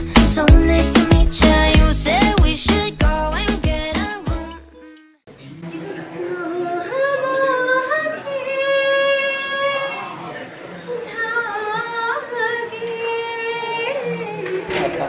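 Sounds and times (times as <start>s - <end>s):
woman singing: 0.0s - 5.0s, 6.4s - 9.9s, 11.0s - 14.4s.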